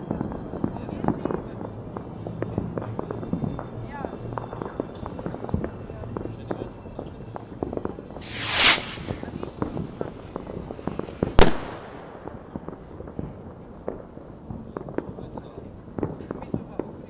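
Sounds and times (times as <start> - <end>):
distant firecrackers crackling: 7.4 - 17.0
rocket hissing upward: 8.2 - 11.4
loud firework bang: 8.2 - 11.9.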